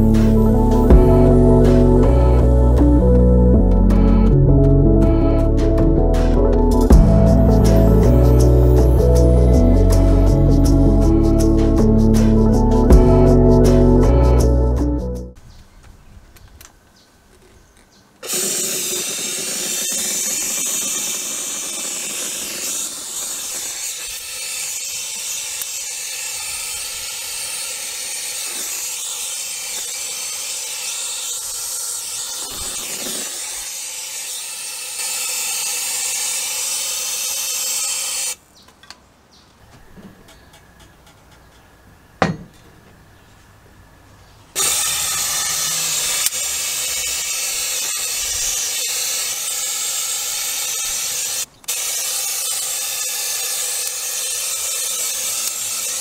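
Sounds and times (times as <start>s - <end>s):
powder spray gun hissing: 18.2s - 38.4s, 44.6s - 56.0s.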